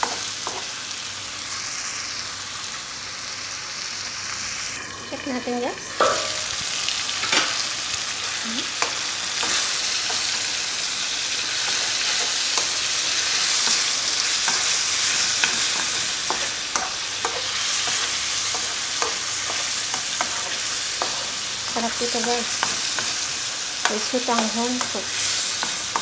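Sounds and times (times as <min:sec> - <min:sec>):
spatula tapping and scraping pan: 0:00.0 - 0:00.7, 0:06.0 - 0:06.5, 0:13.4 - 0:23.2, 0:25.6 - 0:26.0
food sizzling in a wok: 0:00.0 - 0:26.0.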